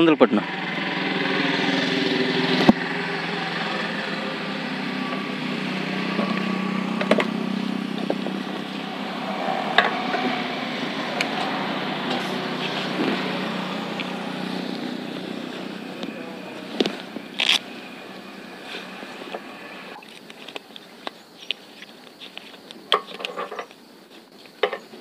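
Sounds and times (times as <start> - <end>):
motorcycle engine idling: 0.0 - 20.0.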